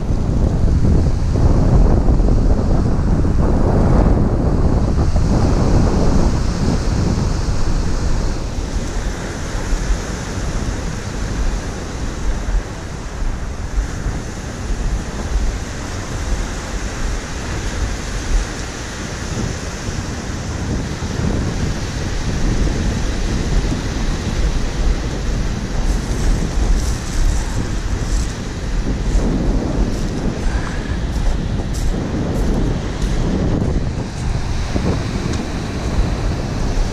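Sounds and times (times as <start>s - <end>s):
wind buffeting microphone: 0.0s - 36.9s
surf breaking on gravel: 22.9s - 36.9s.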